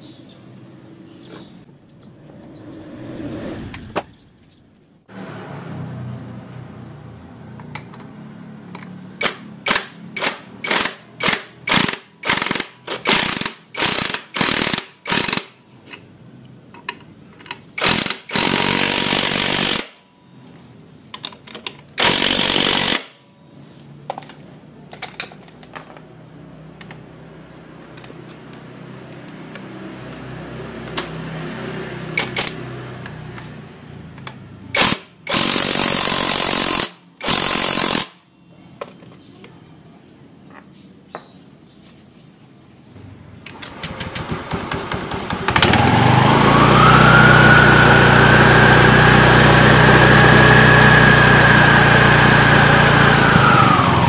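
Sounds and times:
impact wrench hammering: 0:34.8 - 0:38.2.

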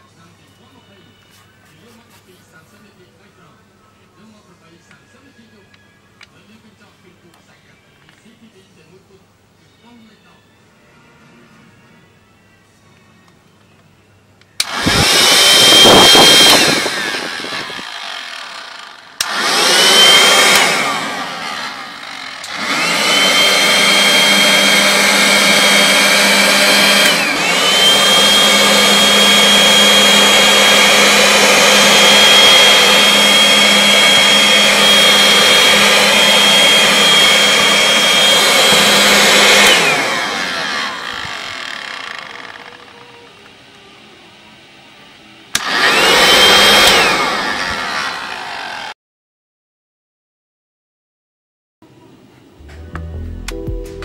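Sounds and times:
electric air pump motor whining: 0:14.6 - 0:44.2, 0:45.5 - 0:49.0.

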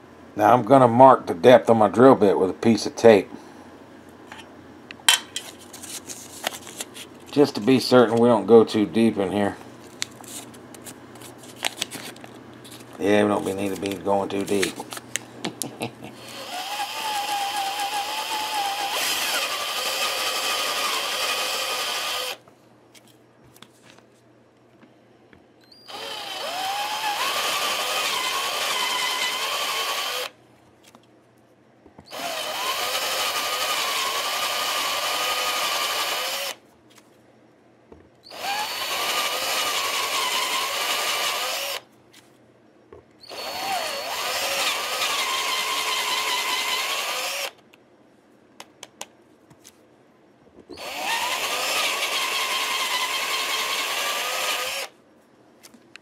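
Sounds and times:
electric drill boring into wood: 0:16.2 - 0:22.4, 0:25.9 - 0:30.4, 0:32.1 - 0:36.6, 0:38.3 - 0:41.8, 0:43.2 - 0:47.6, 0:50.8 - 0:54.9.

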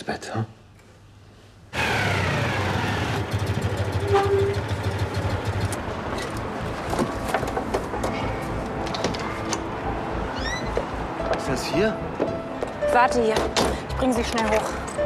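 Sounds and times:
street noise: 0:01.0 - 0:15.0
small car engine running: 0:01.8 - 0:05.8.

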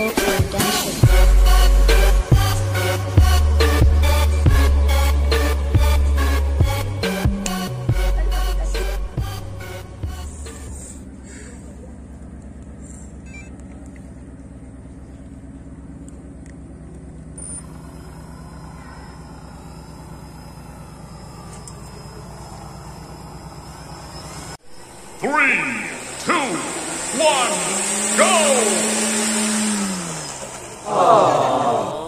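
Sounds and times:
electric motor hum: 0:07.4 - 0:31.4
high-pitched whine: 0:17.3 - 0:30.9.

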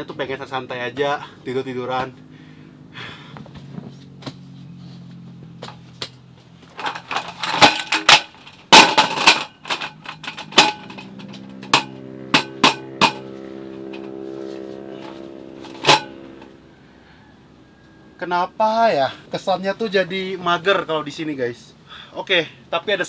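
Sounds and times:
motor engine droning: 0:00.0 - 0:21.0
folding table slats clattering: 0:06.7 - 0:13.2.

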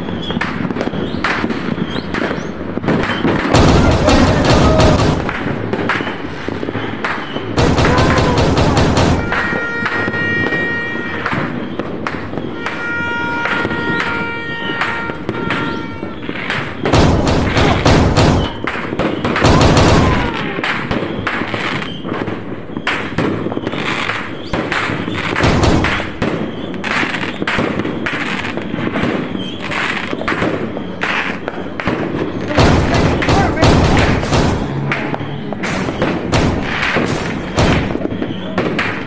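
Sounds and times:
fireworks bangs and crackles: 0:00.0 - 0:39.0
fireworks booms: 0:00.0 - 0:39.0.

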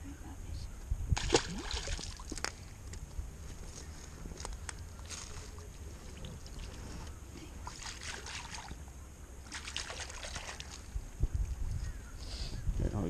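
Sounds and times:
wind rumble on microphone: 0:00.0 - 0:04.7, 0:10.7 - 0:13.0
water sloshing at shoreline: 0:01.2 - 0:02.8, 0:04.9 - 0:11.2.

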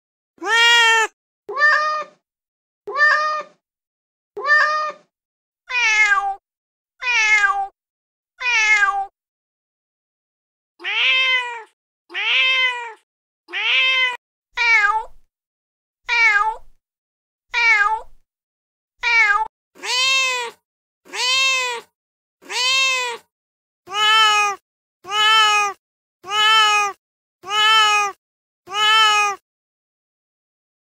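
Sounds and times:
cat meowing: 0:00.4 - 0:02.2, 0:02.9 - 0:03.6, 0:04.4 - 0:05.1, 0:05.7 - 0:06.4, 0:07.0 - 0:07.8, 0:08.4 - 0:09.1, 0:10.8 - 0:15.2, 0:16.1 - 0:16.7, 0:17.5 - 0:18.2, 0:19.0 - 0:23.2, 0:23.9 - 0:29.4.

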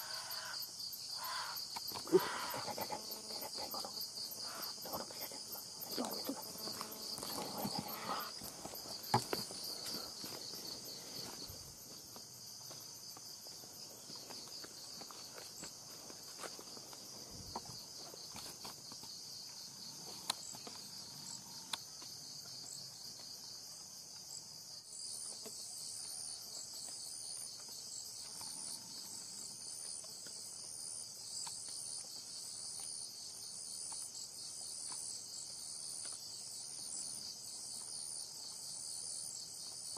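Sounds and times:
insect pulsing call: 0:00.0 - 0:11.9
insects chirring: 0:00.0 - 0:39.9.

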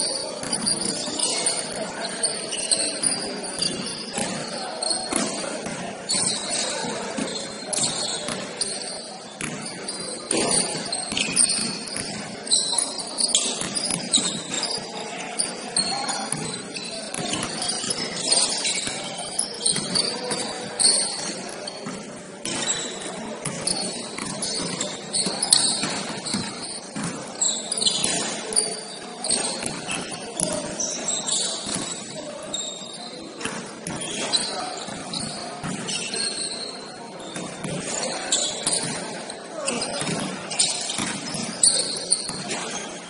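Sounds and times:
sneaker squeaks on hardwood: 0:00.1 - 0:43.0
basketball bouncing: 0:16.3 - 0:17.7, 0:23.4 - 0:27.2, 0:41.0 - 0:41.2.

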